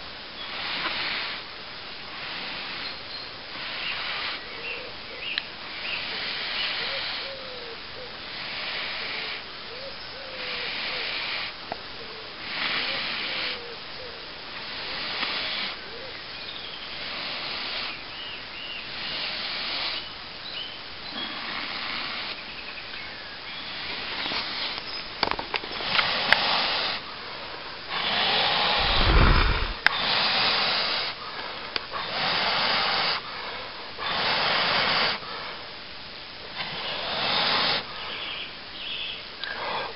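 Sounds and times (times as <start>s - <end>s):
person blowing on ember: 27.9s - 31.2s
breath rumbling on microphone: 28.0s - 31.2s.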